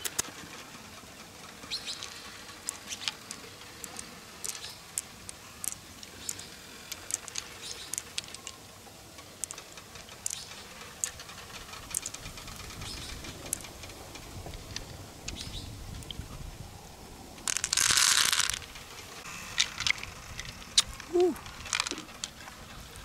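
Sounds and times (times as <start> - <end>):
pearls clicking against shell: 1.8 - 8.6, 9.2 - 13.8, 17.4 - 18.8, 19.6 - 22.4.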